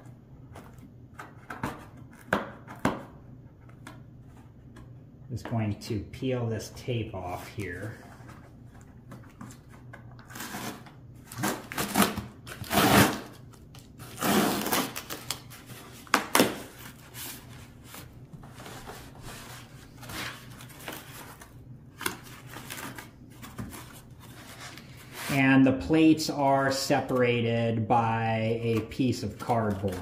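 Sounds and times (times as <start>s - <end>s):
packing tape ripping: 10.2s - 16.8s
cardboard rustling and scraping: 14.0s - 25.5s, 28.6s - 30.0s.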